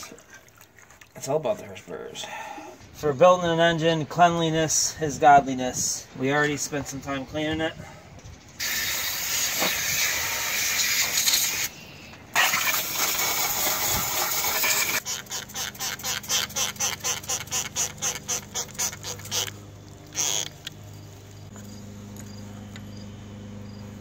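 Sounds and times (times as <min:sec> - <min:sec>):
spray bottle squirts: 0:08.6 - 0:11.7, 0:12.3 - 0:20.8
hose water jet hissing on metal: 0:08.6 - 0:21.3.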